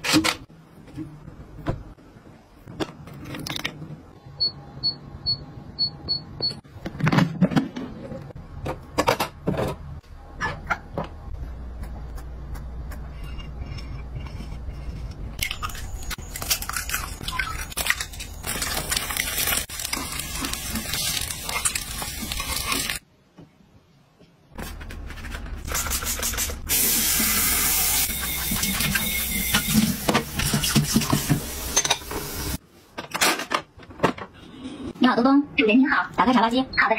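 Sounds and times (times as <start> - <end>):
eggs sizzling in oil: 18.5 - 23.0.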